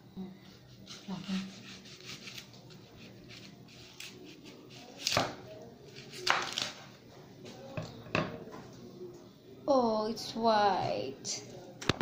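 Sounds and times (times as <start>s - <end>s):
knife chopping on board: 6.1s - 6.7s.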